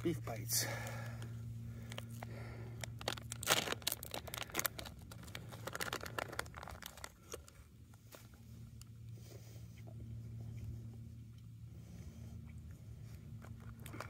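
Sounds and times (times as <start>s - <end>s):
snack package crinkling and tearing: 1.8s - 8.3s.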